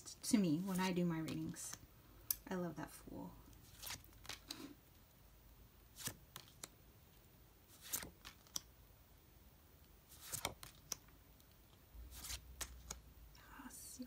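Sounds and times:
cards sliding and snapping: 3.5 - 4.7, 5.9 - 6.8, 7.7 - 8.7, 10.1 - 13.0.

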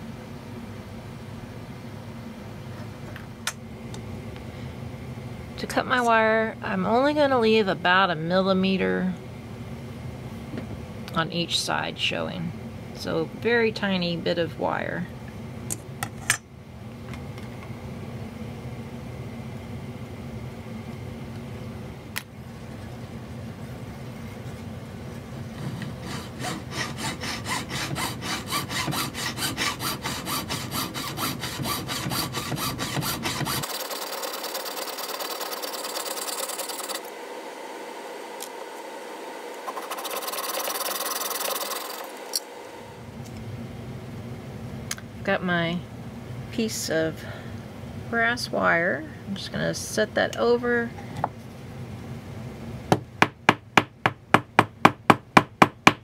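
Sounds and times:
saw cutting wire: 25.6 - 37.2, 39.5 - 42.6
high rasping: 25.9 - 37.1.

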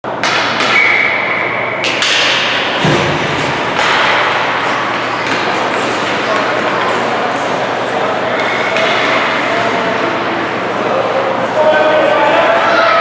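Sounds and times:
sticks and puck clacking: 0.2 - 1.0, 1.8 - 9.8
skates scraping on ice: 2.2 - 10.0.

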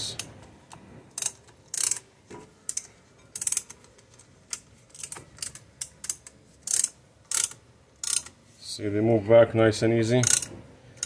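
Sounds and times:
mechanical clicks and rasps: 2.7 - 8.4.

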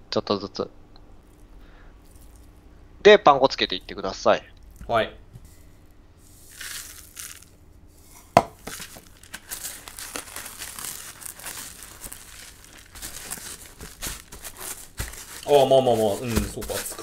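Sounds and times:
breadcrumbs crackling and rustling: 1.2 - 2.7, 5.4 - 17.0
sharp knock: 8.4 - 8.6.

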